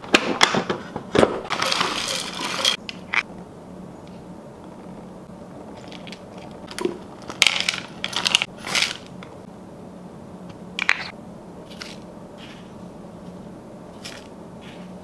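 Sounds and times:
nuts clattering into plastic bowl: 1.5 - 2.8, 5.9 - 9.1.

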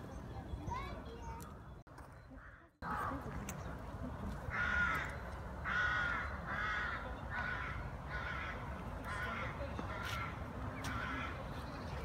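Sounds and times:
crow cawing: 4.5 - 11.4.

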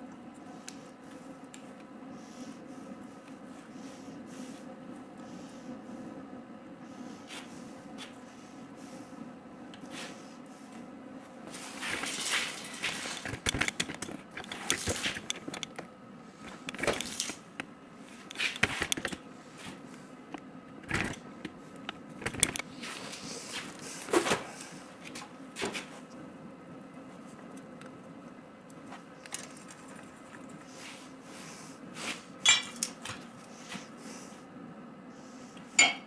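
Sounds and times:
faint steady hum: 0.0 - 36.0
metal tools clinking and scraping: 32.4 - 33.0, 35.8 - 36.0.

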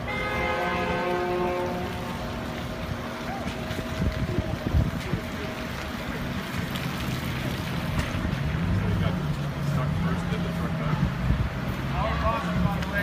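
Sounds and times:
vehicle engines rumbling: 0.0 - 13.0
wind buffeting microphone: 2.7 - 6.8.

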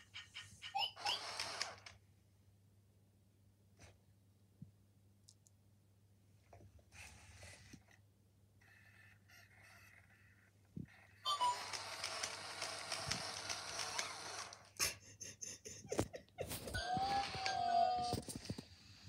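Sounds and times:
sharp clicks: 11.4 - 14.7.

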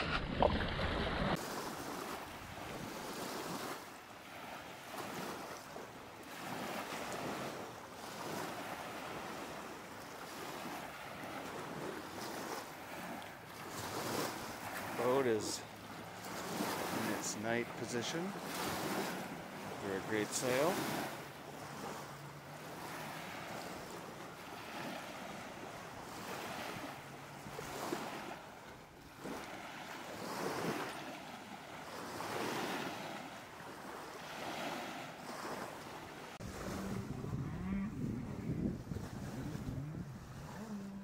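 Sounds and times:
water splashing along a hull: 0.0 - 41.0
wind buffeting the microphone: 36.4 - 41.0.

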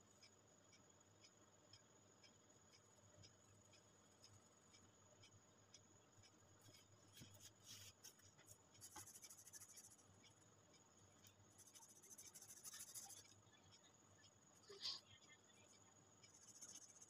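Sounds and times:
pencil scratching on paper: 6.6 - 10.1, 11.3 - 13.4, 16.3 - 17.0.

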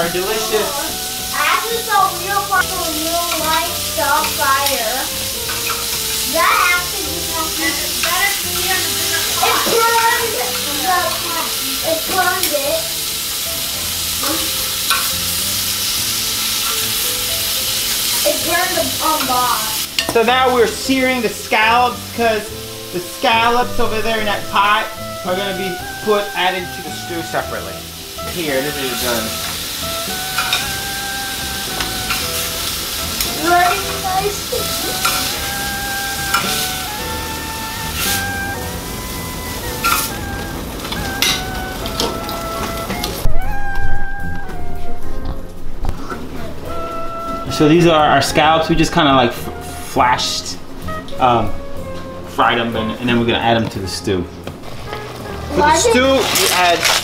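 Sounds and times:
scallops sizzling in a skillet: 0.0 - 43.2, 54.6 - 57.0
utensil scraping a pan: 31.8 - 36.9.

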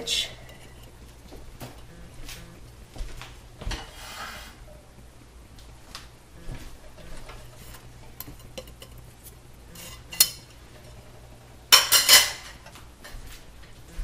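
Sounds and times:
metal utensils clinking: 7.3 - 12.7.

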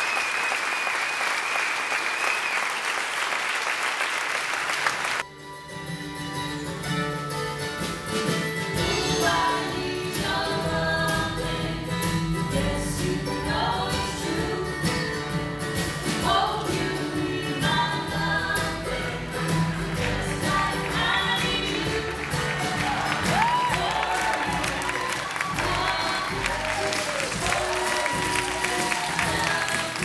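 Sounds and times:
bass: 5.2 - 30.0
guitar: 5.2 - 30.0
voices singing in harmony: 9.0 - 11.8, 23.3 - 30.0.

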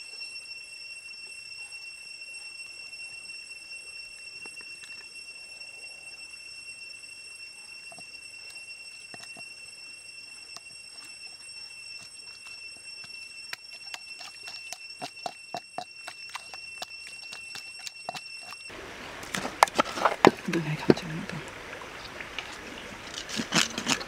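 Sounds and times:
high-pitched whine: 0.0 - 24.0.

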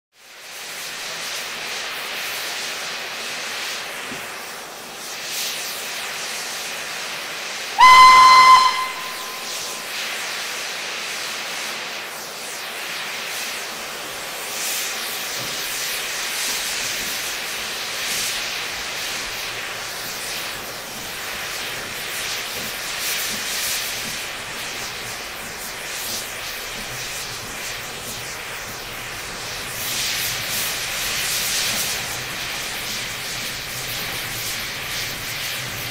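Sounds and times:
steam hissing: 0.2 - 35.9
steam whistle blast: 7.8 - 10.1.

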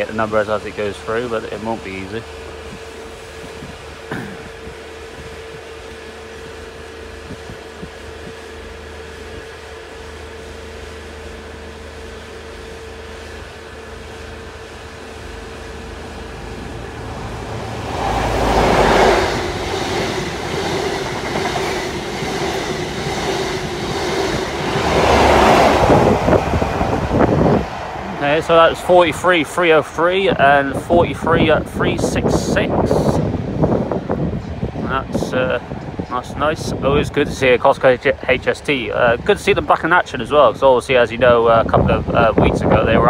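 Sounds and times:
diesel train engine passing: 0.0 - 43.0
train wheels clattering over rails: 16.3 - 28.8.

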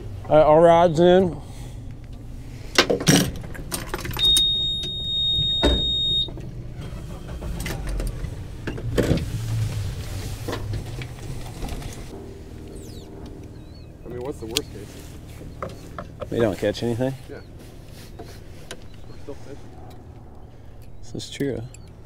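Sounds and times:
low steady hum: 0.0 - 22.0
high electronic beep: 4.2 - 6.3.

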